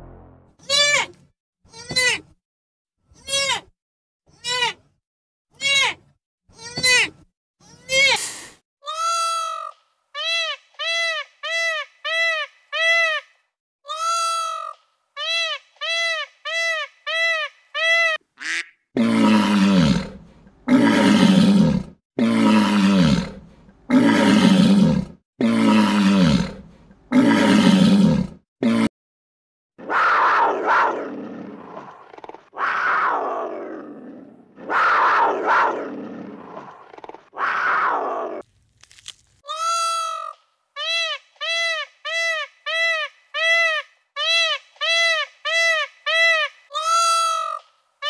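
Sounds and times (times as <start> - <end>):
lion roaring: 19.0 - 28.9, 29.8 - 38.4.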